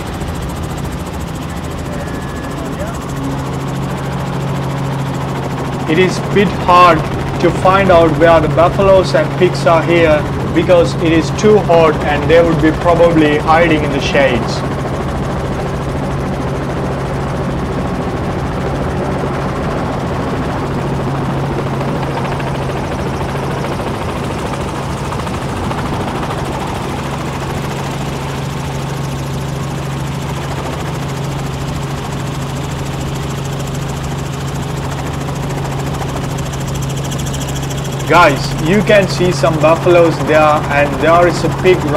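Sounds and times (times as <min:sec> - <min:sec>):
helicopter cabin drone: 0:00.0 - 0:41.9.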